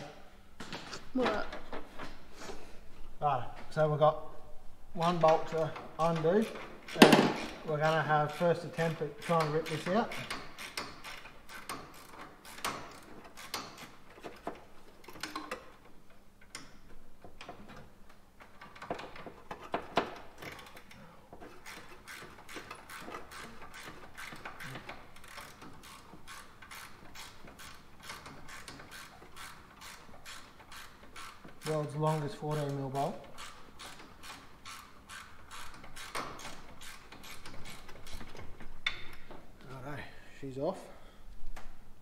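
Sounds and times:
ratchet wrench clicking: 8.8 - 13.9, 21.6 - 31.7, 32.5 - 39.2.

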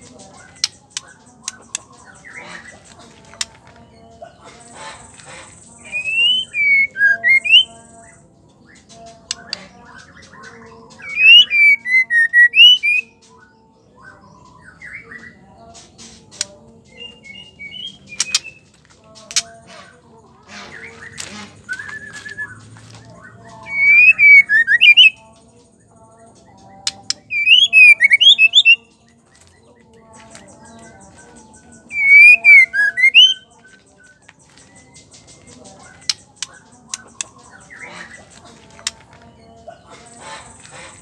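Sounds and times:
bird whistled phrases: 5.8 - 7.7, 11.0 - 13.2, 21.0 - 22.6, 23.6 - 25.2, 27.3 - 28.9, 31.9 - 33.5.

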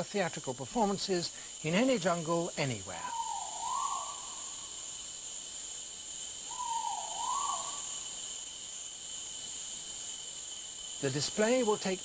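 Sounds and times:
forest insects buzzing: 0.0 - 12.0
pheasant calling: 3.0 - 4.5, 6.5 - 7.9.

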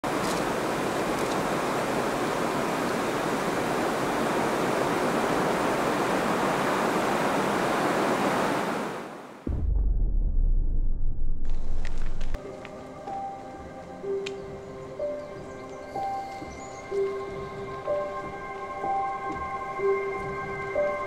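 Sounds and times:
steady rushing noise: 0.1 - 12.4.

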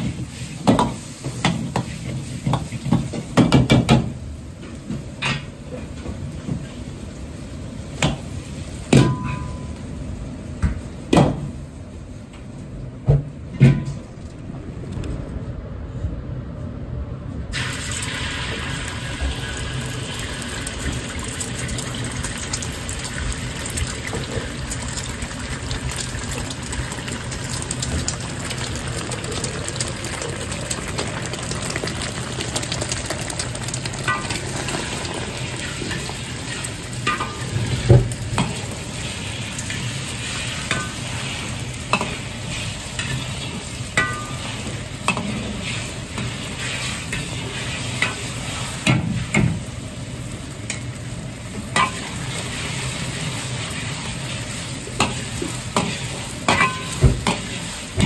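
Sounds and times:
low hum: 13.8 - 17.5
egg sizzling in hot oil: 17.6 - 49.4, 50.1 - 58.0.

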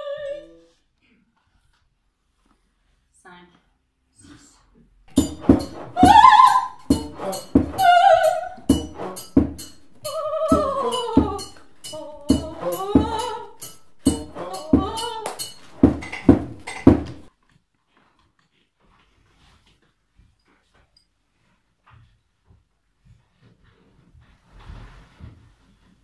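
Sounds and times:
woman singing operatically: 0.0 - 0.6, 6.0 - 8.7, 10.0 - 15.5
sharp percussive strikes: 5.1 - 17.3.

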